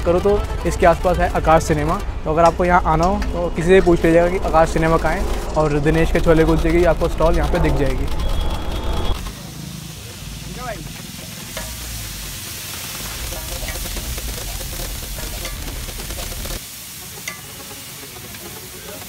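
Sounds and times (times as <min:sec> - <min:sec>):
low rumble: 0:01.0 - 0:09.3
food sizzling on iron griddle: 0:09.2 - 0:19.0
metal ladle stirring: 0:11.5 - 0:16.6.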